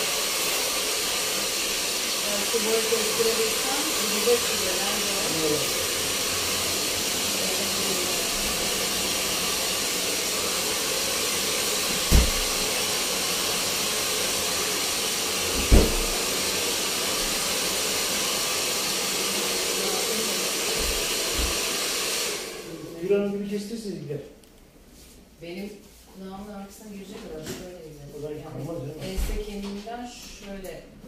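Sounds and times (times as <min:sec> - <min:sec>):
hair dryer blowing: 0:00.0 - 0:23.5.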